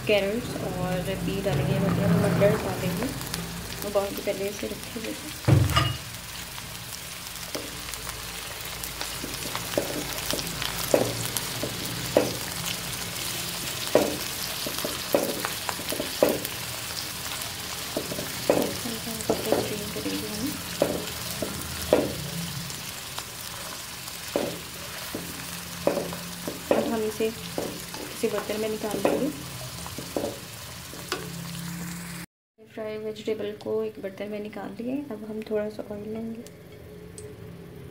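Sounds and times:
vegetables sizzling in oil: 0.0s - 32.3s
spatula knocking and scraping pan: 5.4s - 6.1s, 9.1s - 12.6s, 13.8s - 16.6s, 17.9s - 22.4s, 23.5s - 31.3s.

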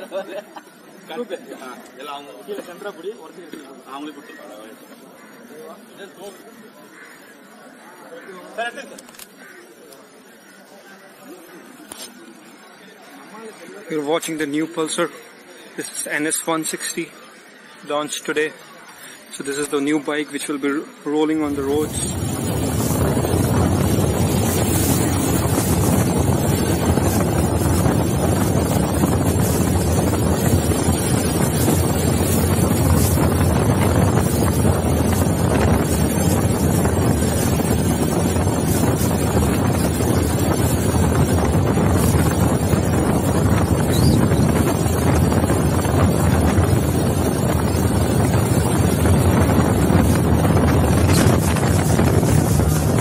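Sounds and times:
road noise: 0.0s - 53.0s
wind buffeting microphone: 21.4s - 53.0s
motorcycle engine: 21.6s - 53.0s.

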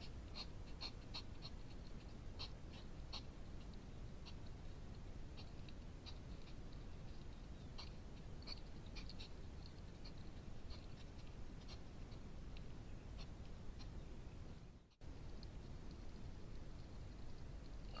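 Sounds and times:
steady low hiss: 0.0s - 18.0s.

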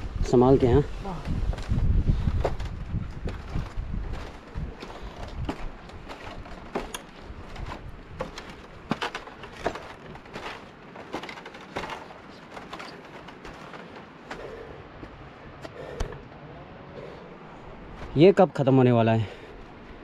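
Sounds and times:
footsteps on bamboo walkway: 0.8s - 18.6s, 19.2s - 20.0s
bamboo poles knocking: 5.4s - 14.6s.

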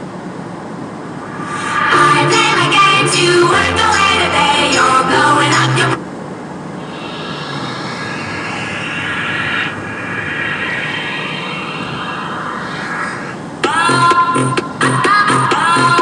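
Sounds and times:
engine whine: 0.0s - 16.0s
road noise rushing: 0.1s - 3.2s, 3.8s - 13.7s
music: 1.7s - 6.0s, 13.6s - 16.0s.

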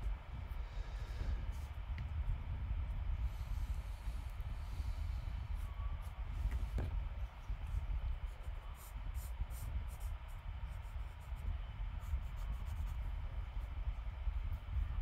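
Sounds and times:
steady low rumble: 0.0s - 15.0s
pencil scratching on paper: 8.3s - 10.2s, 12.0s - 13.0s.

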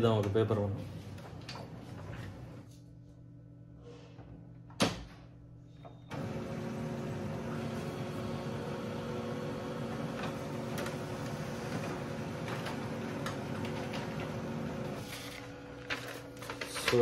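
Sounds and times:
printer motor and fan: 6.1s - 17.0s.

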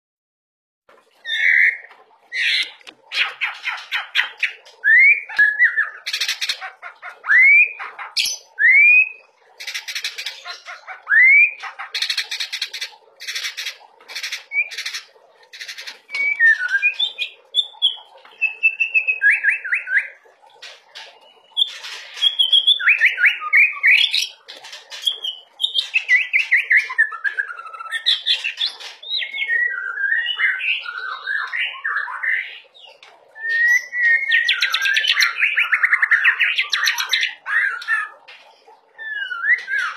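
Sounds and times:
bird singing whistled phrases: 11.1s - 11.6s, 16.1s - 20.2s, 21.4s - 24.1s, 29.2s - 32.6s, 33.4s - 38.1s.

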